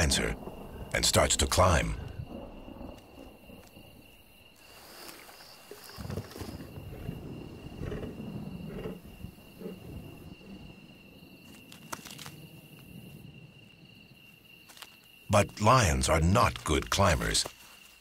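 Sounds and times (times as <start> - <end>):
insect trill: 0.0 - 18.0.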